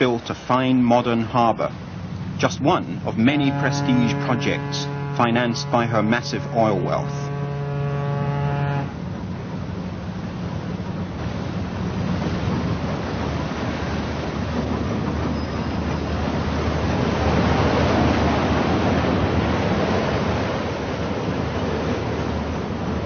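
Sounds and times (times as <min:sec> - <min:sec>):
ship engine hum: 0:00.0 - 0:23.0
water rushing: 0:00.0 - 0:23.0.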